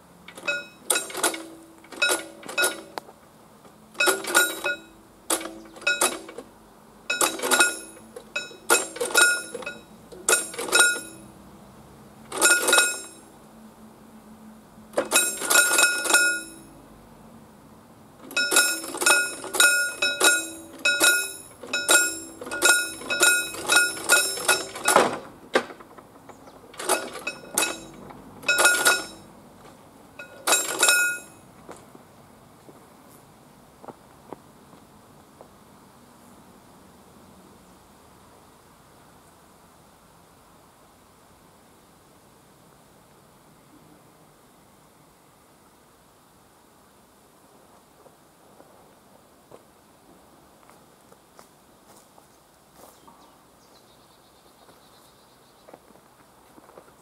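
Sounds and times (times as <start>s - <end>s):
level crossing bell ringing: 0.4s - 3.0s, 4.0s - 5.0s, 5.8s - 6.3s, 7.1s - 11.3s, 12.3s - 13.3s, 15.0s - 16.8s, 18.3s - 25.0s, 26.8s - 29.3s, 30.2s - 31.4s.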